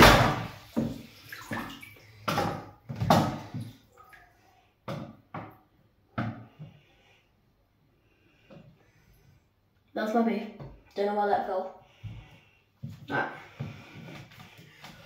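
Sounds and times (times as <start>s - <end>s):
water sloshing: 0.0s - 4.5s.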